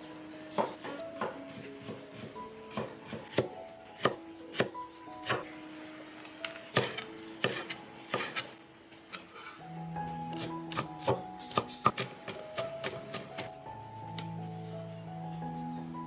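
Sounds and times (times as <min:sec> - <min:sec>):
soft background music: 0:00.0 - 0:16.0
cleaver chopping on wooden board: 0:00.6 - 0:05.5, 0:06.7 - 0:08.5, 0:10.3 - 0:13.5.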